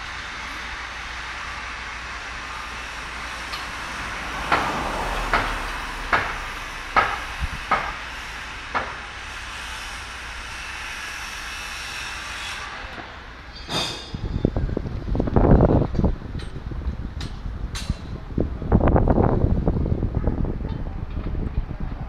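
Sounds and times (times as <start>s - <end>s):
hiss of site noise: 0.0s - 14.9s
metal clank: 13.0s - 14.5s.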